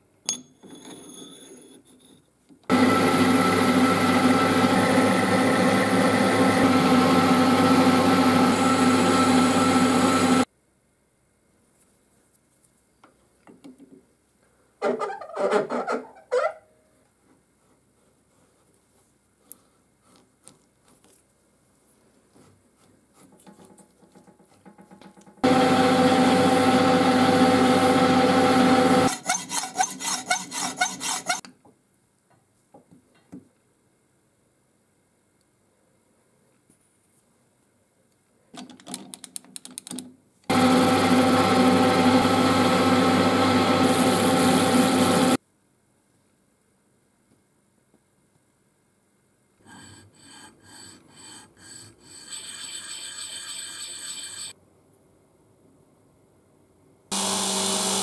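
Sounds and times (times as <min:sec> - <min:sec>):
lathe hum: 0:02.7 - 0:10.5, 0:25.4 - 0:31.4, 0:40.5 - 0:45.4, 0:49.6 - 0:54.6, 0:57.1 - 0:58.0
bolt scraping on sandpaper: 0:29.1 - 0:31.4
rhythmic rubbing strokes: 0:29.1 - 0:31.4.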